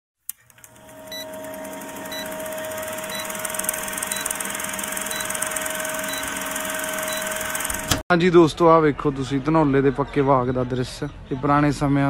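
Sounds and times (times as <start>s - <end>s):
film projector clatter: 0.3s - 8.0s.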